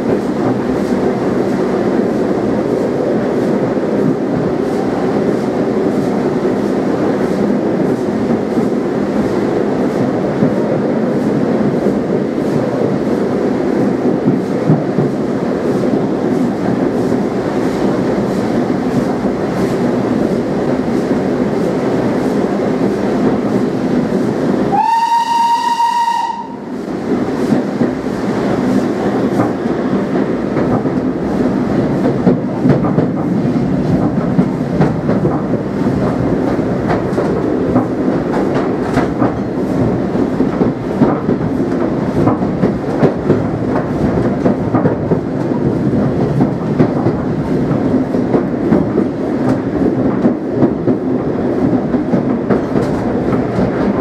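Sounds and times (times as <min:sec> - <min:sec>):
rail-joint clicks: 0:00.0 - 0:24.8, 0:26.5 - 0:54.0
steam train rumbling: 0:00.0 - 0:54.0
steam whistle blast: 0:24.7 - 0:26.7.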